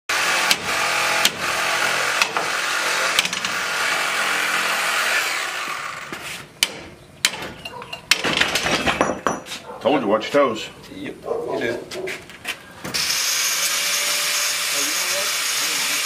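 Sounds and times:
power tool running: 0.1s - 6.2s, 12.9s - 16.0s
sharp knocks: 6.6s - 9.6s.

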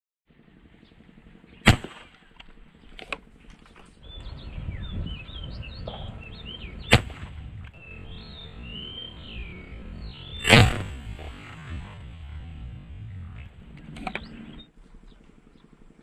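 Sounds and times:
airgun shots: 1.6s - 3.2s, 5.8s - 8.7s, 10.3s - 14.4s.

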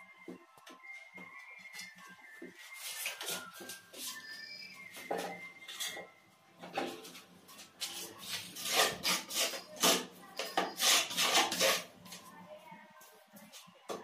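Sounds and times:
mortar scraping in a bucket: 7.8s - 11.9s.

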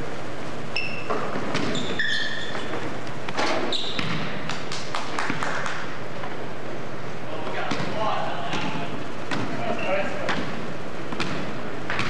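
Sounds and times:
sneakers squeaking on gym floor: 0.7s - 4.4s, 9.4s - 10.6s
basketball bouncing on floor: 3.3s - 4.6s, 10.2s - 12.0s.

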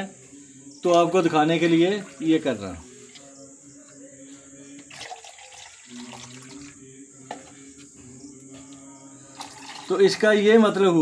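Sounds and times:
liquid trickling into metal bowl: 1.6s - 3.2s, 4.9s - 6.7s, 9.3s - 10.4s.

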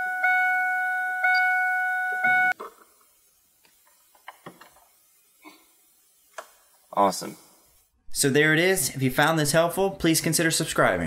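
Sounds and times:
dashboard warning chime: 0.0s - 2.6s.

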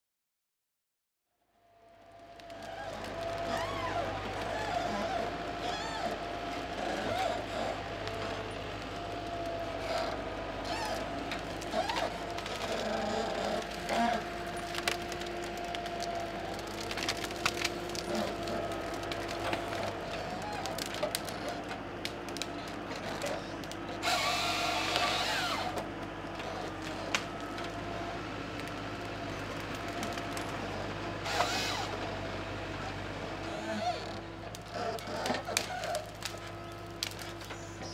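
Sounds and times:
harvester engine and hydraulics whining: 1.6s - 37.9s
branches cracking and snapping: 2.3s - 33.1s, 34.0s - 37.9s.

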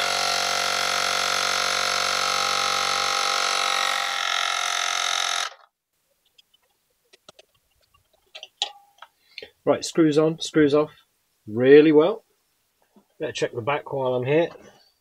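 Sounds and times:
electric tyre inflator drone: 0.0s - 5.6s.

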